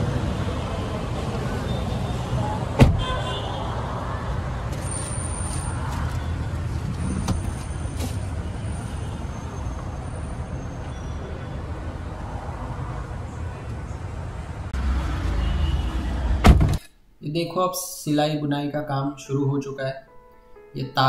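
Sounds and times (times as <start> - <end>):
road traffic rumble: 0.0 - 16.8.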